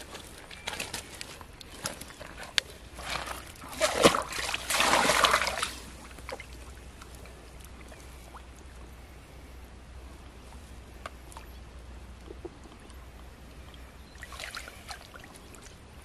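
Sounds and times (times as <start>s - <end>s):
water sloshing: 0.0s - 8.8s, 13.7s - 15.8s
water trickling and lapping: 0.0s - 16.0s
net bag splashing into water: 3.0s - 5.8s.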